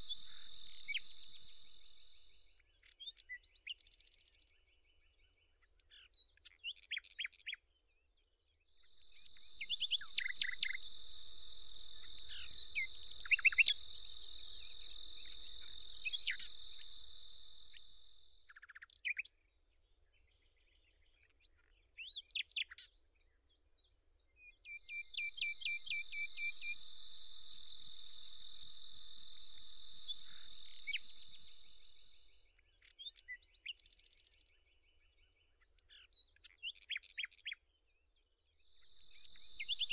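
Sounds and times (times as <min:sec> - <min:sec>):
insect-like high trill: 0:00.0 - 0:02.4, 0:09.0 - 0:18.4, 0:24.9 - 0:32.3, 0:38.8 - 0:39.9
bird chirps: 0:00.0 - 0:07.6, 0:08.8 - 0:19.5, 0:24.2 - 0:37.6, 0:38.6 - 0:39.9.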